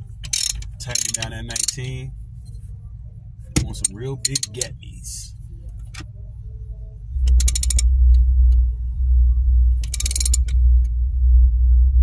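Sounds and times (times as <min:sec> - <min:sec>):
steady low rumble: 0:00.0 - 0:12.0
ratchet wrench clicking: 0:00.2 - 0:01.8, 0:03.8 - 0:04.7, 0:07.3 - 0:07.8, 0:09.8 - 0:10.6.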